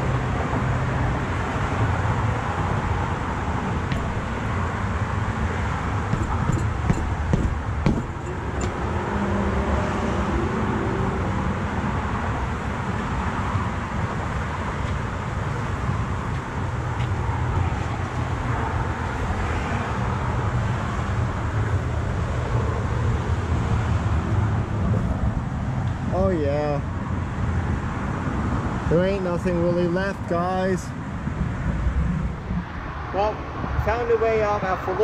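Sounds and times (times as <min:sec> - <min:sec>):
road traffic rumble: 0:00.0 - 0:35.0
sharp knocks: 0:03.9 - 0:04.4, 0:06.1 - 0:08.8.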